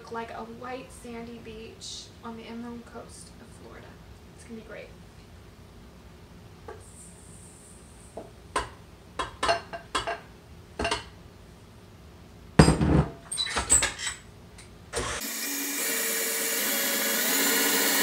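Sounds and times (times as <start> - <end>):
stand mixer motor running: 15.0 - 18.0.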